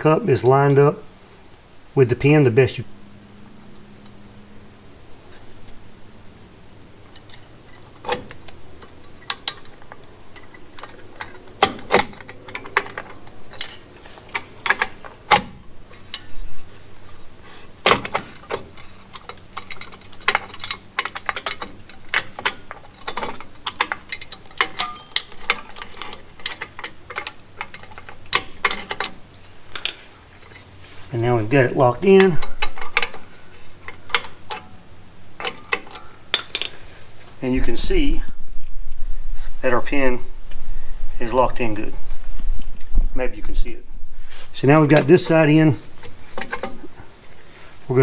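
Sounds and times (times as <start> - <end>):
metal clicks and scrapes: 7.0 - 37.4, 44.2 - 47.4.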